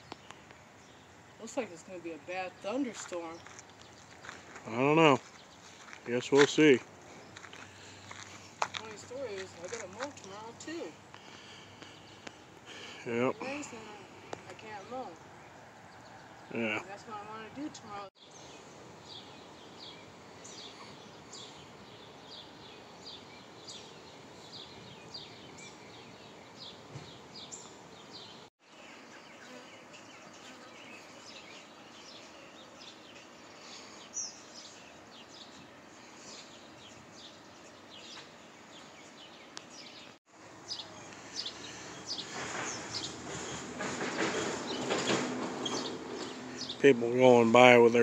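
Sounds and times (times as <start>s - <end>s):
small birds chirping: 0.0s - 48.0s
cars going by: 41.4s - 47.5s.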